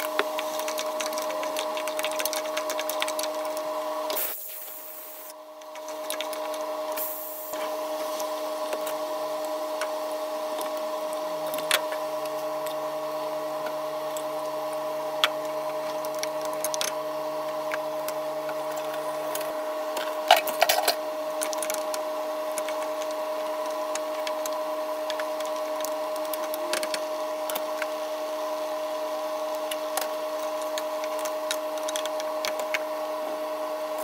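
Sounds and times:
droning hum: 0.0s - 34.0s.

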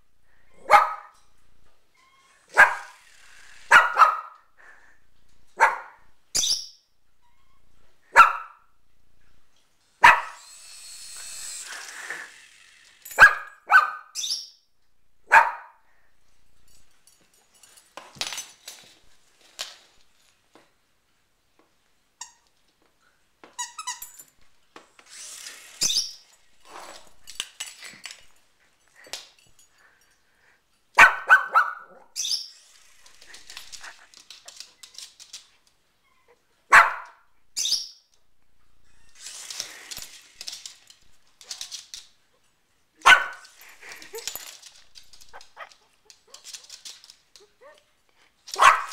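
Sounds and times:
small dog barking: 0.6s - 1.2s, 2.5s - 3.0s, 3.7s - 4.4s, 5.6s - 6.0s, 8.1s - 8.6s, 10.0s - 10.4s, 13.2s - 14.2s, 15.3s - 15.8s, 31.0s - 32.2s, 36.7s - 37.2s, 43.0s - 43.4s, 48.6s - 48.9s.

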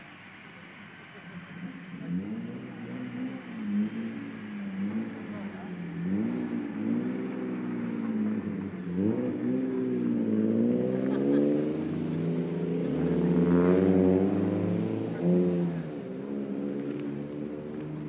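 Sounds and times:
truck diesel engine revving: 0.0s - 18.0s.

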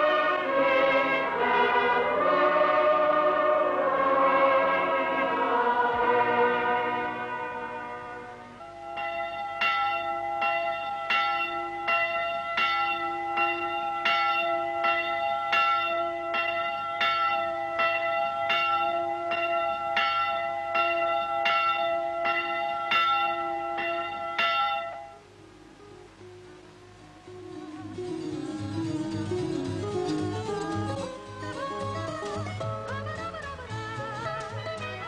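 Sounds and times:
church bell rung quickly: 7.0s - 25.2s.

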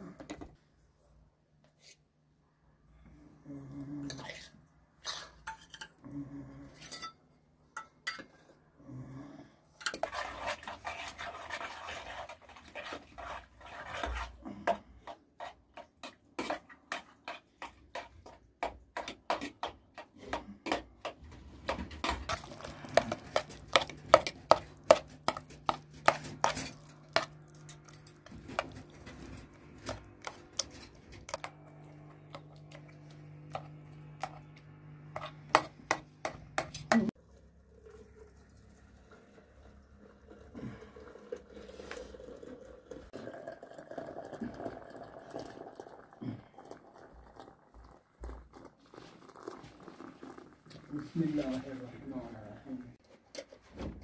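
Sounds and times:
utensils clinking against dishes: 26.1s - 28.9s.

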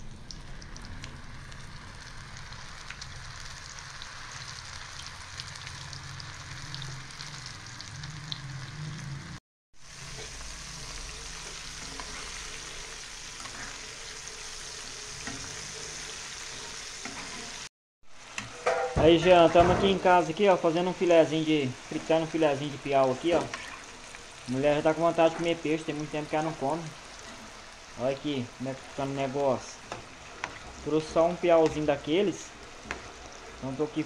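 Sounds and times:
fish deep-frying in oil: 0.0s - 19.4s.

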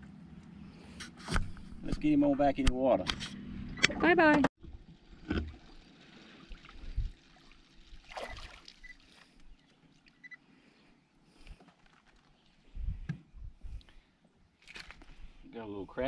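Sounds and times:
water lapping against boat: 4.6s - 10.3s.

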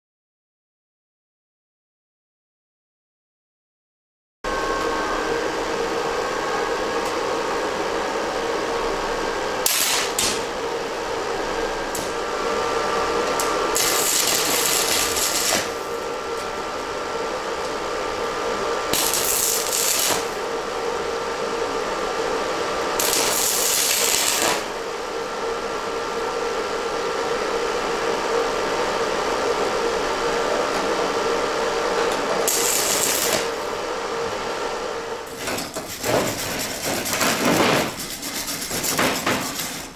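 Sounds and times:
arc welder sputtering: 9.6s - 20.9s, 21.7s - 25.1s, 31.9s - 34.4s, 35.1s - 39.9s.

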